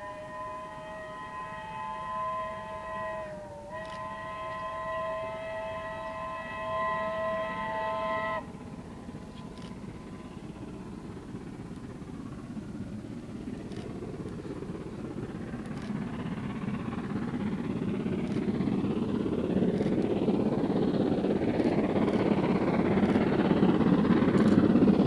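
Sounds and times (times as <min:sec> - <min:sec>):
steam locomotive whistle: 0:00.0 - 0:10.9
train running rumble: 0:00.0 - 0:25.0.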